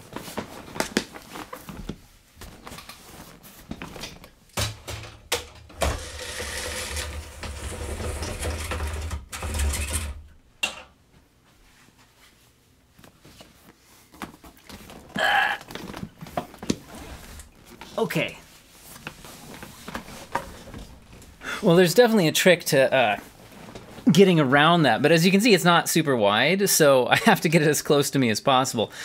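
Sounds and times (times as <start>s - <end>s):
screen rubbing and rustling: 5.7s - 10.3s, 15.8s - 17.9s, 18.6s - 21.4s.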